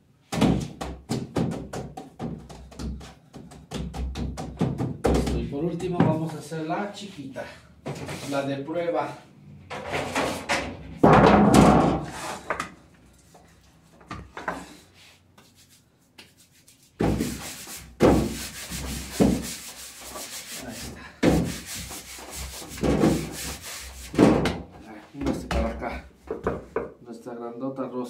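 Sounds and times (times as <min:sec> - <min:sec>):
hands rubbing dough on wood: 0:14.8 - 0:24.3.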